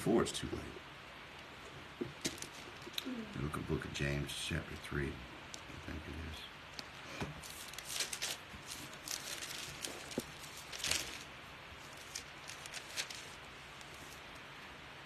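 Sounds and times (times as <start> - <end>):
pages turning: 6.7 - 14.4.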